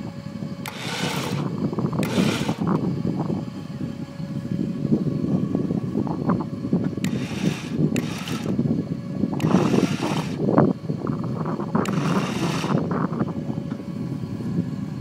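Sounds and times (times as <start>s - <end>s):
hissing rushes: 0.6s - 2.8s, 7.0s - 8.6s, 9.4s - 10.4s, 11.8s - 12.8s
mechanical clicking and grinding: 0.6s - 2.8s, 7.0s - 8.6s, 9.4s - 10.4s, 11.8s - 12.8s.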